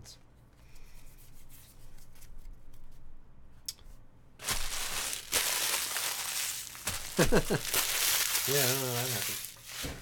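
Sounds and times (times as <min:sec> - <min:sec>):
wrapper crinkling: 0:04.4 - 0:10.0.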